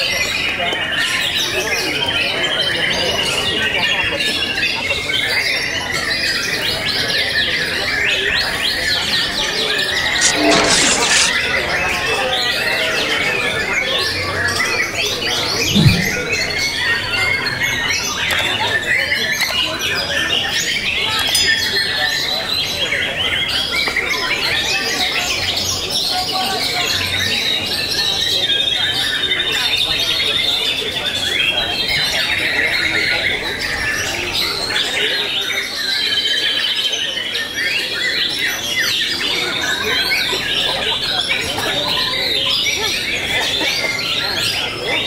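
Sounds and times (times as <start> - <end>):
murmur of voices: 18.3 - 45.0.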